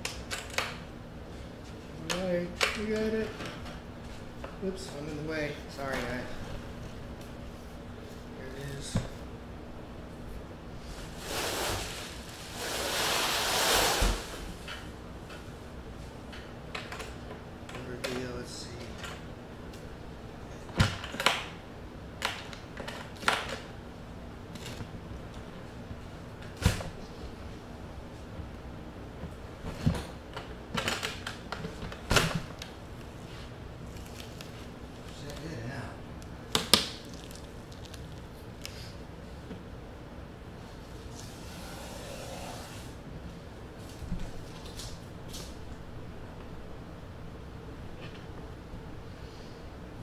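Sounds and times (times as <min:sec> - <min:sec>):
plastic wrap rustling: 0:11.0 - 0:14.4, 0:33.8 - 0:35.7, 0:36.7 - 0:38.9.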